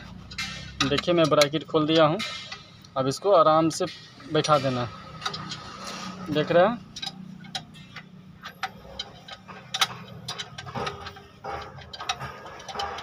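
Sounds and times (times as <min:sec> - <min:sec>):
metal scraping: 0:00.0 - 0:13.0
light metallic clicks and taps: 0:00.2 - 0:03.0, 0:06.3 - 0:13.0.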